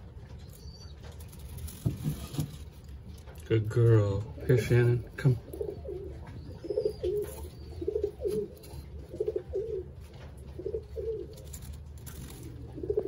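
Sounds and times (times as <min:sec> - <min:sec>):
pigeon cooing: 0:04.3 - 0:13.0.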